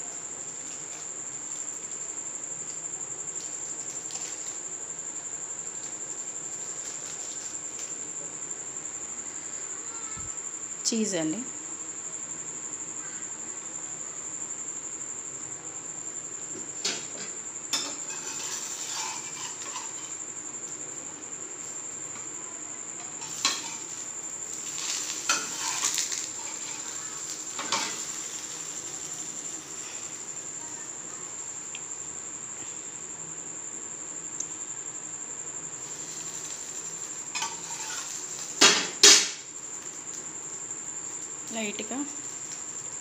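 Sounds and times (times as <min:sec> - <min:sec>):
spatula scraping a pan: 0:17.7 - 0:20.2, 0:23.2 - 0:30.2, 0:35.8 - 0:38.7.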